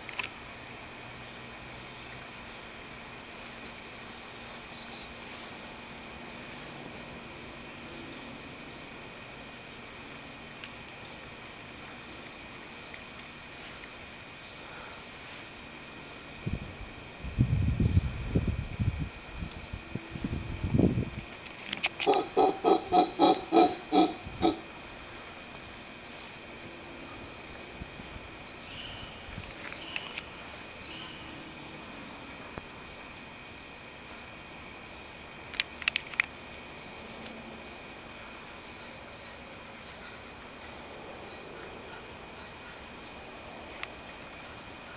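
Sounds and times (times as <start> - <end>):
insects droning: 0.0 - 44.9
sharp clicks: 35.5 - 36.4.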